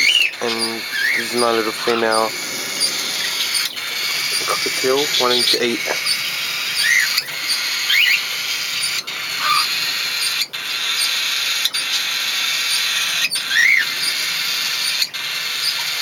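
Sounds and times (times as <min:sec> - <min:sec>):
steady hiss: 0:00.0 - 0:11.4
cockatiels chirping: 0:00.0 - 0:16.0.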